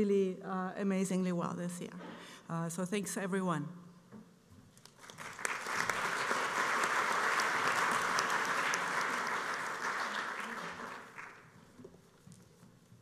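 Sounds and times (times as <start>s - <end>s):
audience applauding: 4.8s - 11.5s.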